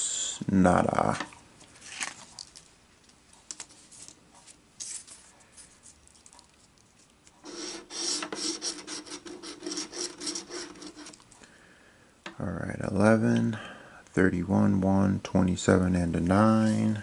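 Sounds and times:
lottery ticket being scratched: 7.4 - 11.2.

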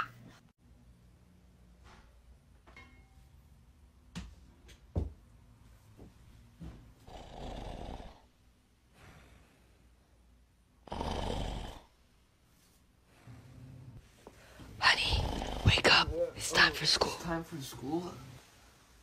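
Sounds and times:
person snoring: 7.0 - 8.3, 10.8 - 12.0, 14.9 - 16.2.

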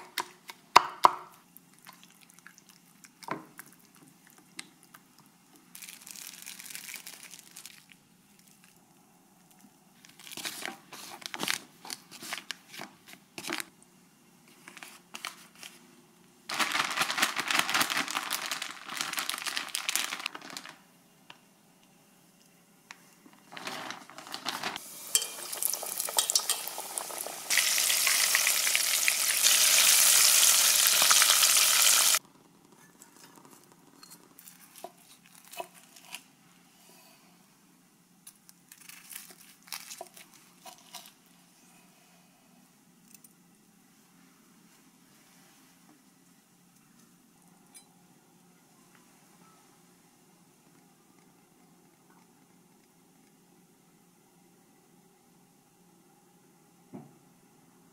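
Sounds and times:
chicken rustling in plastic bag: 5.7 - 8.0, 16.5 - 20.8, 23.5 - 31.6, 38.7 - 41.1
deep-frying sizzle: 24.8 - 32.2.

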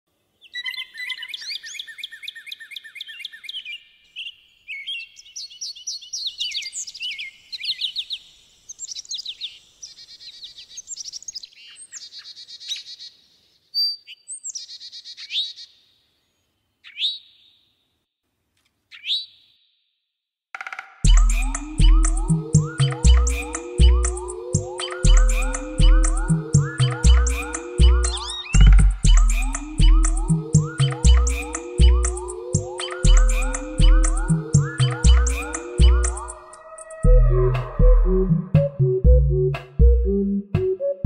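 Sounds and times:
birds chirping and trilling: 0.4 - 17.8, 18.9 - 19.6, 21.0 - 39.0.

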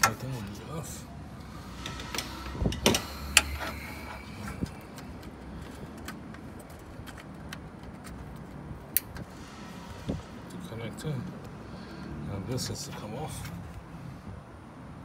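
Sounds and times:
faint steady background noise: 0.0 - 15.0.

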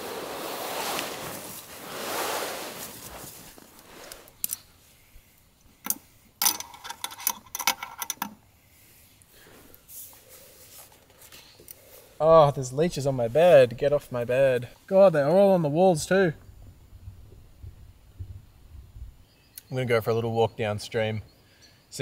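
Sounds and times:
canvas and clothing rustling: 0.0 - 5.3
metal lantern clicking and clinking: 5.8 - 8.4.

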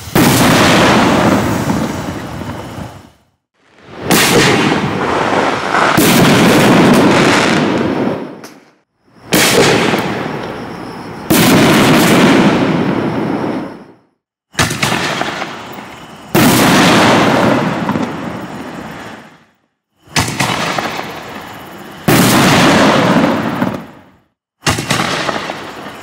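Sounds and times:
firework shells bursting: 3.8 - 13.8.

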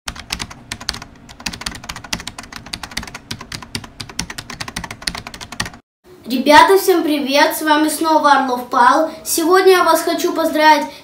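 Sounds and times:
keyboard typing clicks: 0.1 - 5.8.

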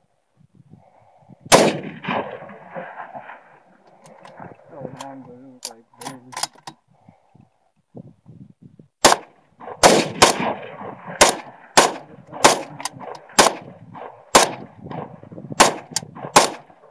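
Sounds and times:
semi-automatic gunshots with echo: 1.5 - 3.2, 9.0 - 16.7.

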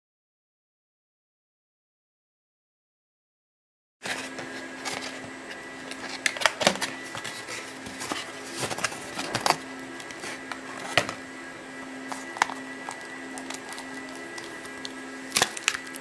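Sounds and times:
steady hum: 4.0 - 16.0.

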